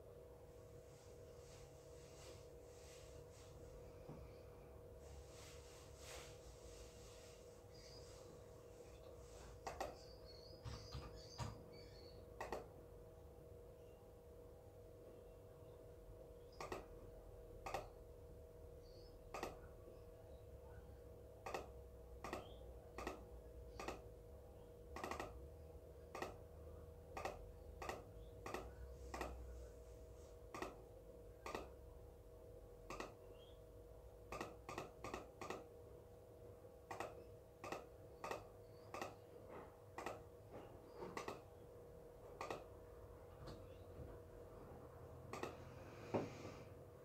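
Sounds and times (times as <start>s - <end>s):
faint steady hum: 0.0s - 47.0s
mouse and keyboard clicks: 9.6s - 10.0s, 12.4s - 12.7s, 16.6s - 16.9s, 17.7s - 17.9s, 19.3s - 19.6s, 21.4s - 23.2s, 23.8s - 24.0s, 25.0s - 25.4s, 26.1s - 26.4s, 27.2s - 29.4s, 30.5s - 30.8s, 31.4s - 31.7s, 32.9s - 33.2s, 34.3s - 35.7s, 36.9s - 39.2s, 40.0s - 40.2s, 41.1s - 41.4s, 42.4s - 42.6s, 45.3s - 45.6s.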